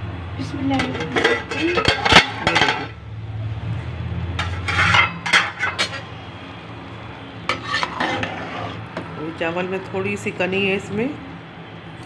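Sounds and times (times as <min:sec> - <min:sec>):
pot lid clinking and scraping: 0:00.7 - 0:03.0, 0:04.4 - 0:06.1, 0:07.5 - 0:08.8.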